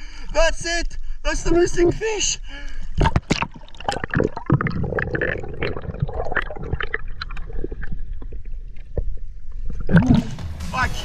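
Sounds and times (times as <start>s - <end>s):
underwater gurgling and bubbling: 3.0s - 10.3s.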